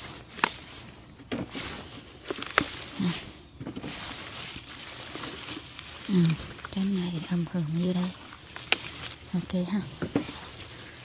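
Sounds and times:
pepper plants rustling: 0.0 - 11.0
peppers snapping off: 0.2 - 0.7, 2.2 - 3.2, 4.6 - 9.4.

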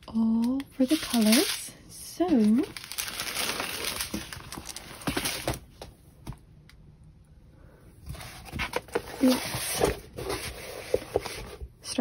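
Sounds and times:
plastic film rustling: 0.8 - 5.9, 8.2 - 11.6.

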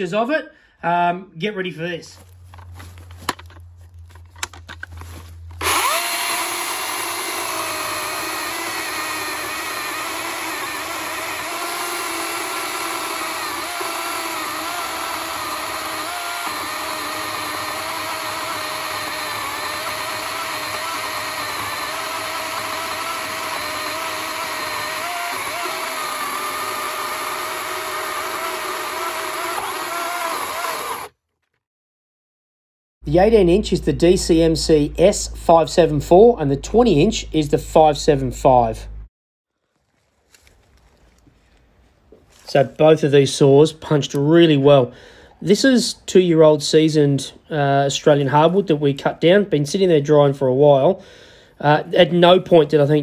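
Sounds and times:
chainsaw cutting log: 4.2 - 31.2.

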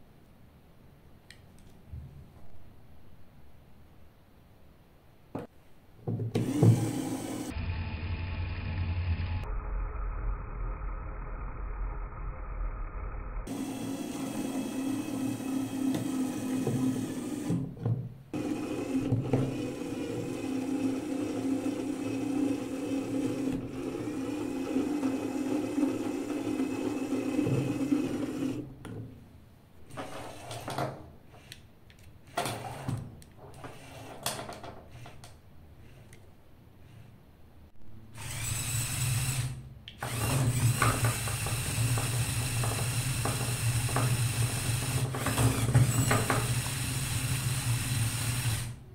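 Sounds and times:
toy motors whirring: 33.6 - 36.2, 38.2 - 48.8.

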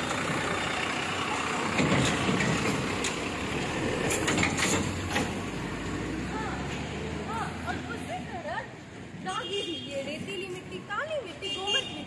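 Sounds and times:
truck engine driving past: 0.0 - 7.9.

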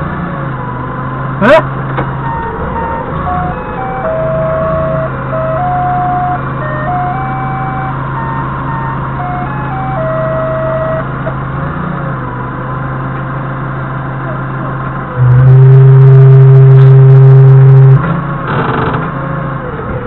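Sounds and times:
diesel engine idling: 0.0 - 20.0
electronic beeping melody: 2.2 - 11.3, 15.2 - 18.0.

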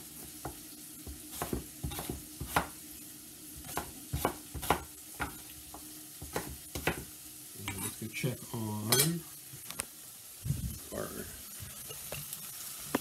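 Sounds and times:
knife chopping on wooden board: 0.4 - 2.8, 3.6 - 7.1.

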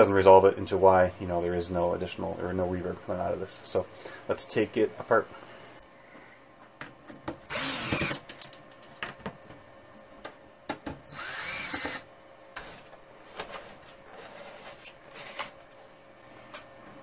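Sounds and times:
cordless drill spinning: 7.5 - 8.2, 11.1 - 12.0.

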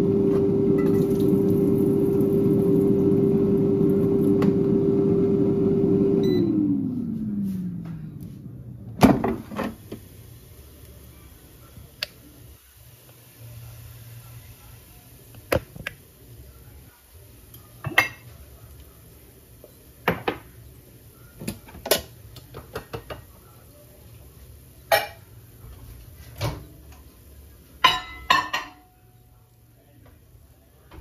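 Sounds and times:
dishes and utensils clattering: 24.9 - 25.3, 27.8 - 28.9.

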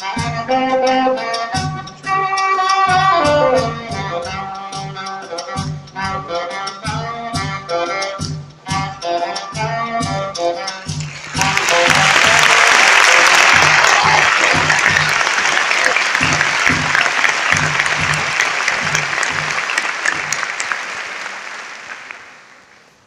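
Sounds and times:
saxophone: 0.0 - 19.8
backing track with steady beat: 0.0 - 20.5
audience applause: 11.0 - 22.7.

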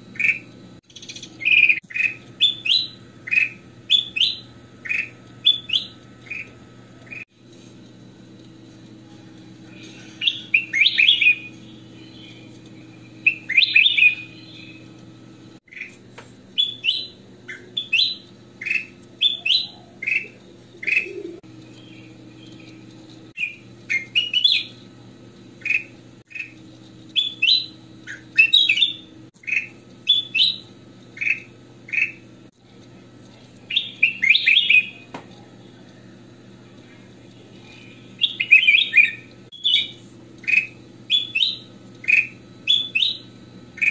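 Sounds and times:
faint low hum: 0.0 - 43.9
bird chirping song: 0.1 - 7.2, 9.7 - 15.0, 16.6 - 22.8, 23.4 - 24.8, 25.6 - 32.3, 33.7 - 35.1, 37.4 - 43.9.

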